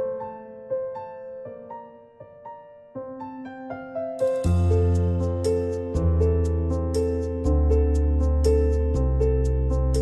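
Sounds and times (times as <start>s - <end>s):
gentle background music: 4.2s - 10.0s.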